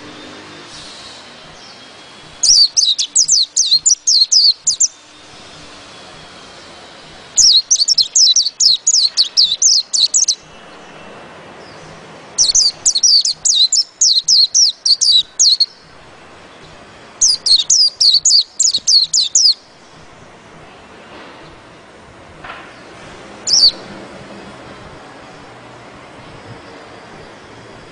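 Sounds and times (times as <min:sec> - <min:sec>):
bird singing rapid falling notes: 0:01.5 - 0:05.8, 0:07.3 - 0:20.3, 0:22.7 - 0:24.2.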